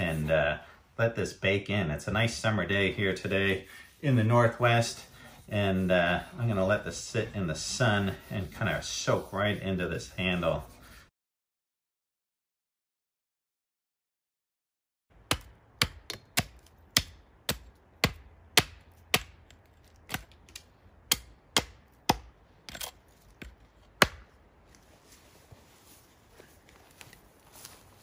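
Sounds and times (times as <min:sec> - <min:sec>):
hatchet chopping wood: 0:15.1 - 0:24.4.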